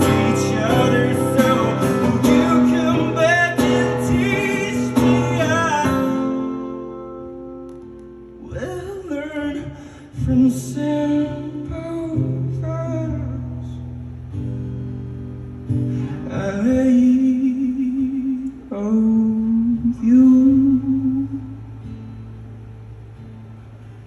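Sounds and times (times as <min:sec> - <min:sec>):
man singing: 0:00.0 - 0:06.8, 0:08.4 - 0:13.8, 0:16.1 - 0:21.6
acoustic guitar: 0:00.0 - 0:24.0.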